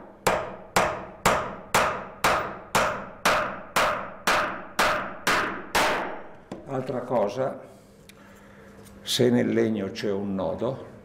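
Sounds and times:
hammer striking nail into wood: 0:00.2 - 0:06.3.

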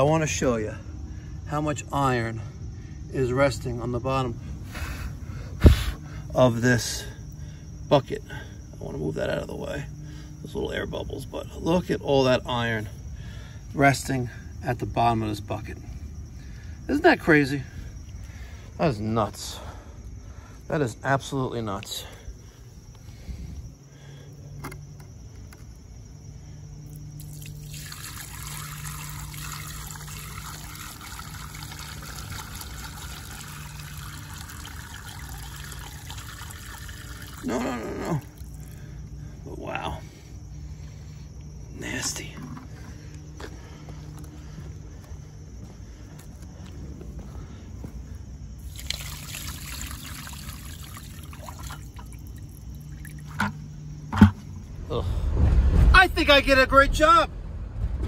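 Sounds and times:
short thump: 0:05.6 - 0:05.9, 0:53.4 - 0:54.6
water pouring onto ground: 0:26.9 - 0:38.8, 0:48.6 - 0:53.5.

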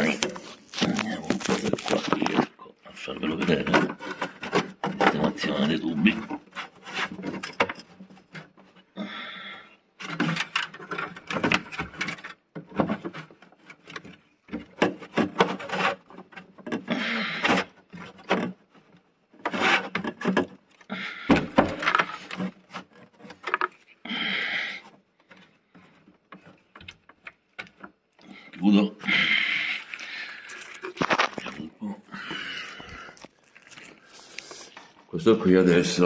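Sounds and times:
ducts rubbing and knocking: 0:00.0 - 0:09.0, 0:09.8 - 0:35.2
scratchy rasp: 0:03.2 - 0:08.8, 0:14.8 - 0:26.7.

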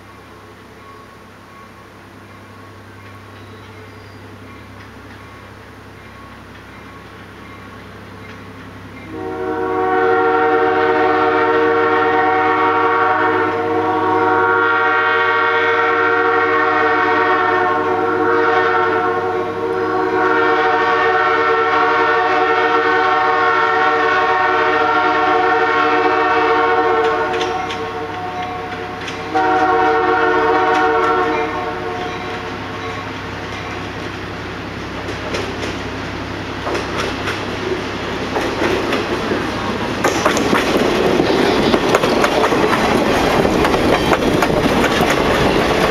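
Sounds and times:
train wheels clicking: 0:02.3 - 0:09.2, 0:26.8 - 0:45.9
train horn blasts: 0:09.0 - 0:33.9.

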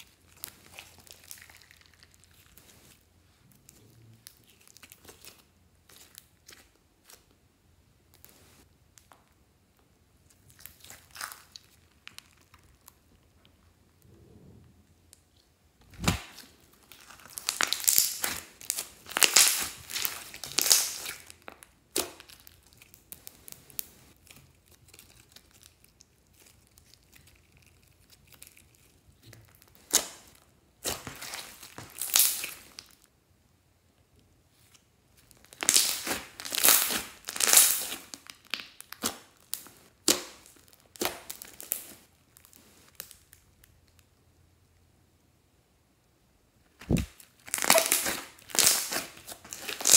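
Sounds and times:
slime crackling and popping: 0:00.0 - 0:03.0, 0:08.9 - 0:14.0, 0:15.9 - 0:33.1, 0:35.2 - 0:44.2, 0:46.8 - 0:49.9.

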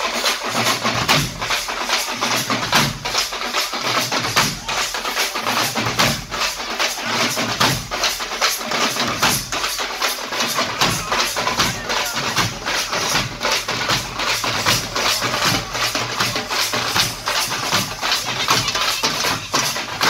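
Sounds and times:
frame drums and barrel drums beating: 0:00.0 - 0:20.0.

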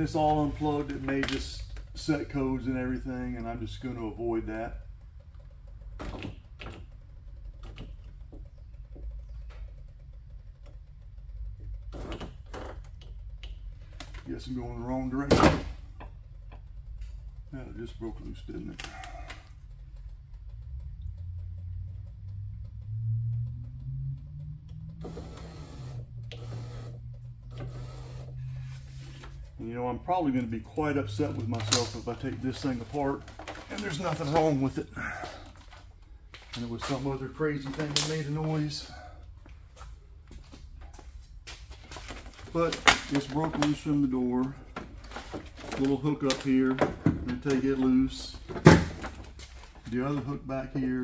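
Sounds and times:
low steady hum: 0:00.0 - 0:51.0
rough mechanical noise: 0:00.0 - 0:51.0
power window motor humming: 0:18.3 - 0:33.3.

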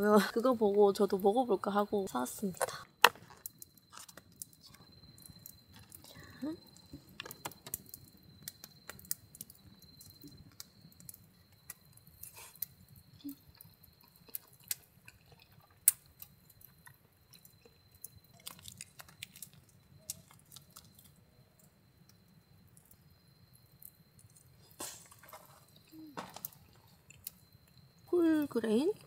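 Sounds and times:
chewing: 0:12.2 - 0:21.1.

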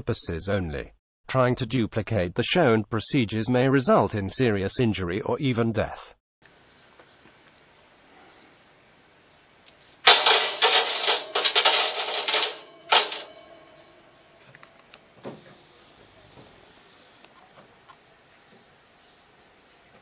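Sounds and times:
metal strips clattering on steel sheet: 0:10.1 - 0:13.4.

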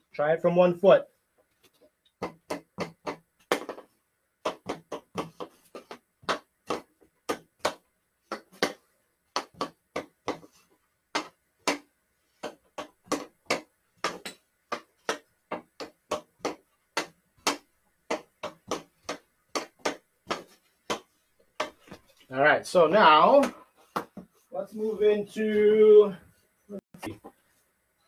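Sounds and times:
hockey stick knocking ball: 0:02.2 - 0:22.0, 0:23.4 - 0:24.3.

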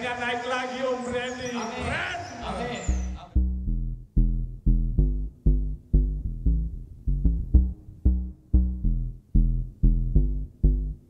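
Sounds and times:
pitched notes over deep bass: 0:02.9 - 0:11.0.

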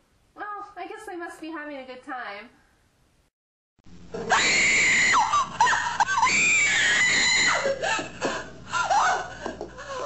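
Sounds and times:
person screaming: 0:06.2 - 0:07.7.

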